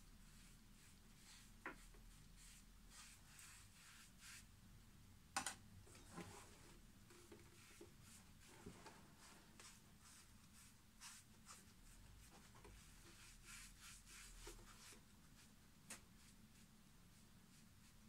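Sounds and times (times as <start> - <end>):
sponge rubbing on leather: 7.6 - 15.5.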